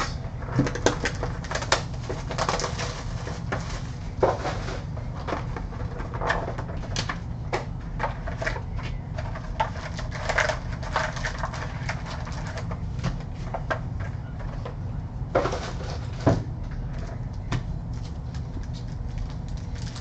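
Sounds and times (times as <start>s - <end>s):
steady low hum: 0.0s - 20.0s
card pack wrappers crinkling: 0.6s - 4.9s, 17.9s - 20.0s.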